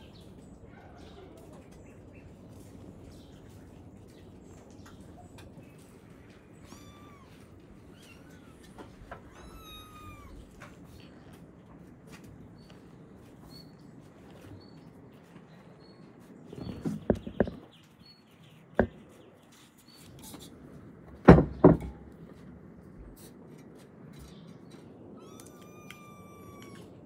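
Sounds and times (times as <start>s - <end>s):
kitten meowing: 6.5s - 10.8s, 25.2s - 27.0s.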